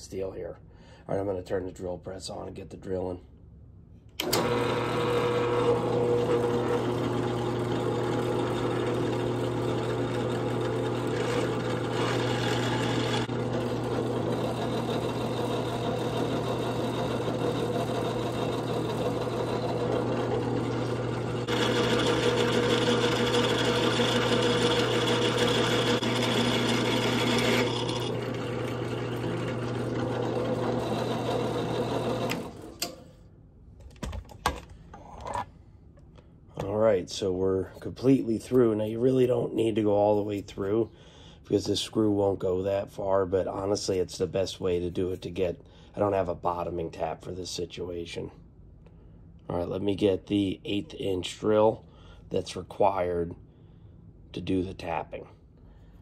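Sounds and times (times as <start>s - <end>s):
drill press drilling metal: 4.2s - 33.0s.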